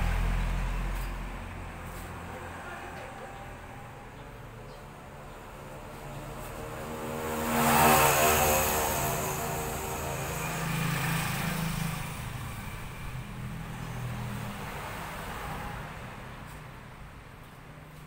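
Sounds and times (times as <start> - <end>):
vehicle passing by: 0.0 - 18.0.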